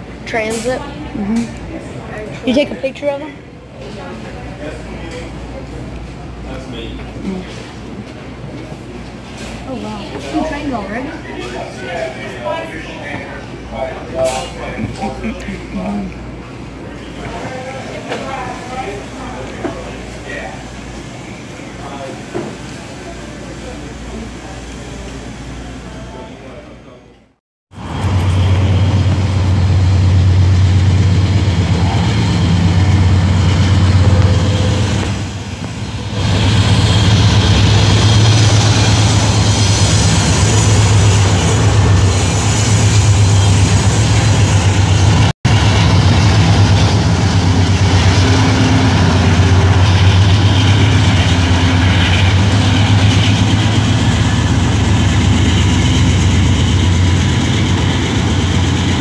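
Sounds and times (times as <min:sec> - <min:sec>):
diesel locomotive engines droning: 0:00.0 - 0:59.0
passing road traffic: 0:27.7 - 0:59.0.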